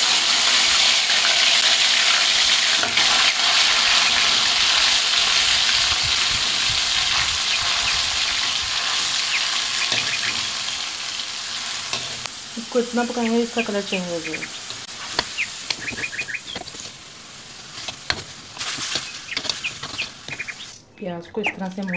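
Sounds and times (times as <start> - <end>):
meat sizzling in hot fat: 0.0 - 20.8
metal spoon scraping and stirring: 11.9 - 12.3, 17.6 - 20.5.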